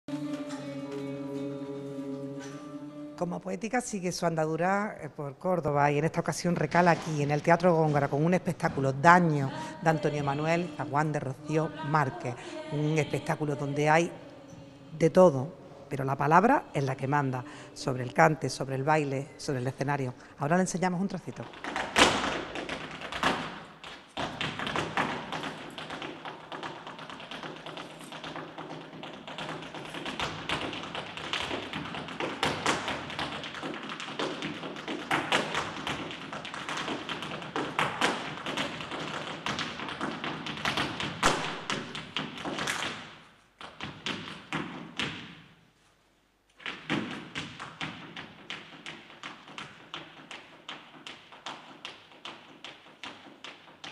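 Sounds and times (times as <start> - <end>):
flamenco shoes striking stage floor: 0.1 - 3.2, 21.0 - 45.6, 46.5 - 53.9.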